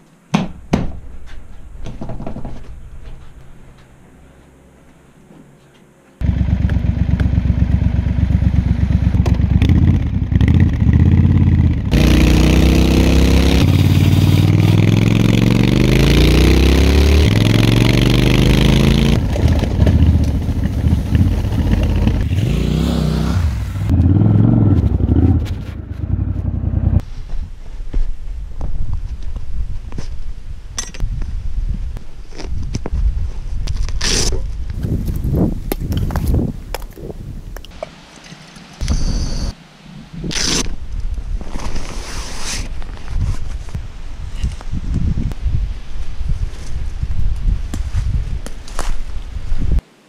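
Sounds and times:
motorcycle engine revving: 6.2s - 27.0s.

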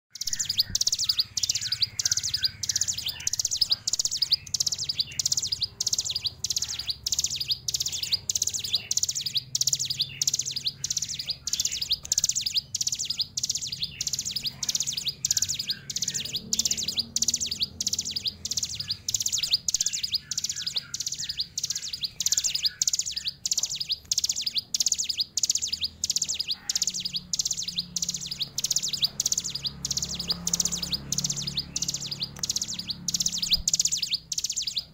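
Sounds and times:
bird chattering song: 0.1s - 34.9s.

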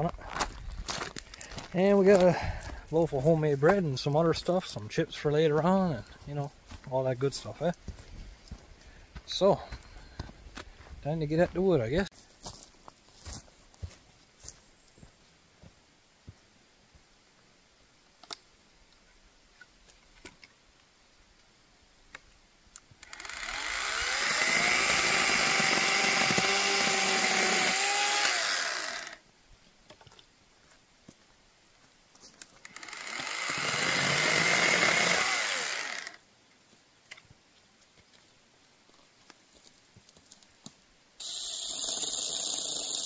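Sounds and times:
chainsaw cutting wood: 23.0s - 29.2s, 32.6s - 36.2s, 41.2s - 43.0s.

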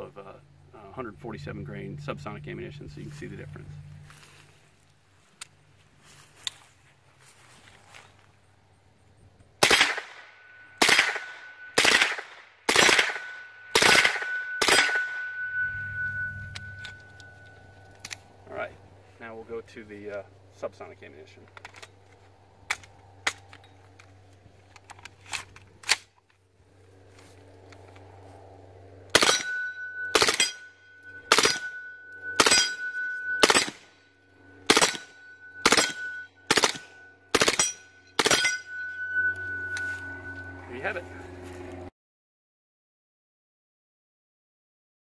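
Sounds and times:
suppressed automatic gunfire bursts: 9.6s - 10.2s, 10.8s - 15.0s, 34.7s - 35.0s, 35.6s - 38.5s.

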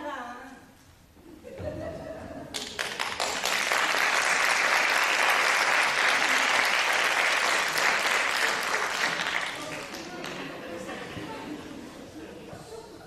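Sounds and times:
audience applauding: 2.5s - 11.1s.

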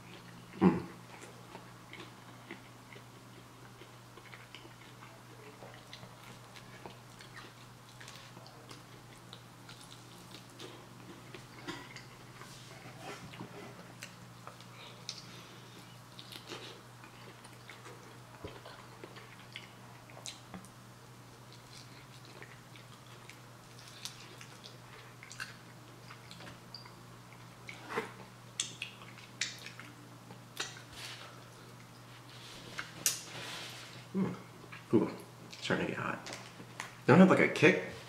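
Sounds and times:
crunchy chewing: 0.0s - 20.7s, 21.3s - 34.9s
wet mouth clicks: 28.6s - 29.8s.

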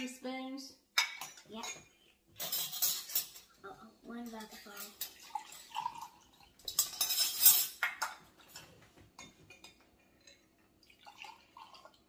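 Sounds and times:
spoons clinking against cups: 1.0s - 3.6s, 4.2s - 10.5s.

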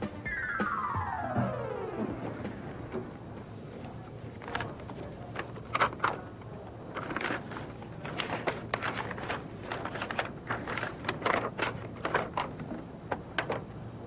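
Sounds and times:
paper rustling and crinkling: 4.2s - 13.7s.

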